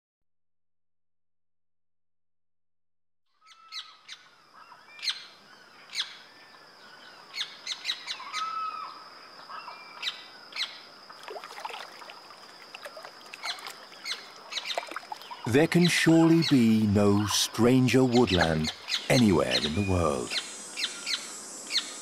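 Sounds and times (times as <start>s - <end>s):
birds chirping and calling: 13.4s - 22.0s
steady high-pitched tone: 15.5s - 22.0s.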